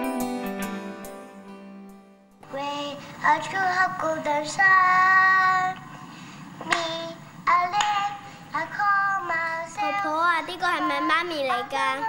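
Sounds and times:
girl singing slowly: 2.4 - 5.9, 6.6 - 12.0.

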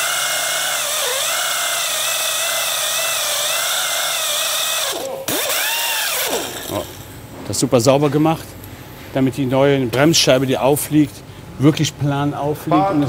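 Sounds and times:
grinder whining on metal: 0.0 - 7.1.

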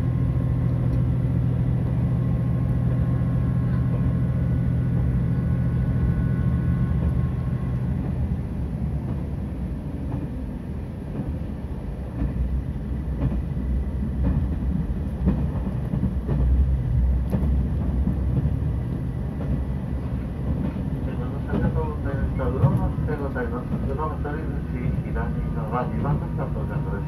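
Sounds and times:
wheels rumbling on rail: 0.0 - 27.0
clacks over rail joints: 10.0 - 24.2.

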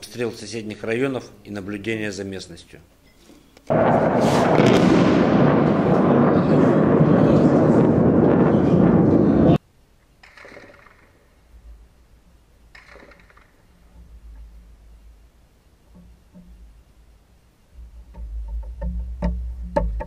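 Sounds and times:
loud explosion with rumble: 3.7 - 9.6.

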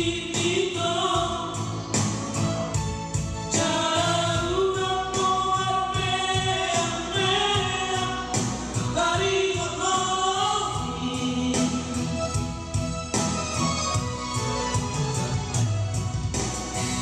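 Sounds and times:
instrumental accompaniment with beat: 0.0 - 17.0
two men singing: 3.6 - 12.3.

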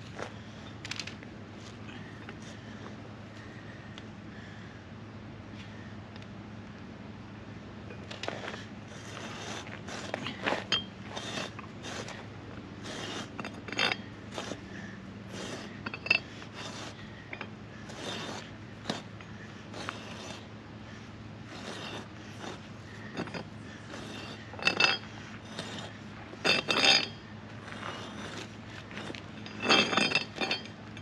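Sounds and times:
steady low hum: 0.0 - 31.0
metallic clicks and scrapes: 0.8 - 1.2, 7.9 - 14.7, 15.3 - 20.5, 21.4 - 31.0.

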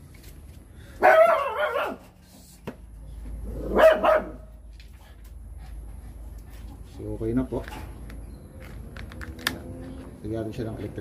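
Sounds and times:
dog barking: 1.0 - 2.1, 3.7 - 4.5.

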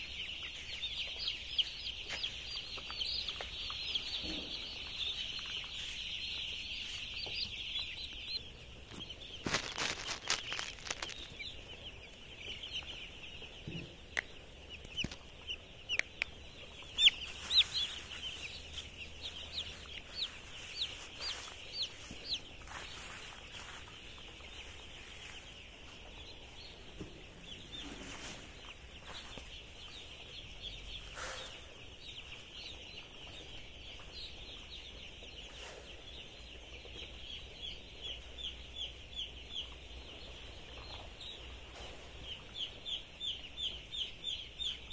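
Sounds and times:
chicks peeping chorus: 0.0 - 44.9
scratchy rustle: 9.4 - 11.3, 17.2 - 24.0.

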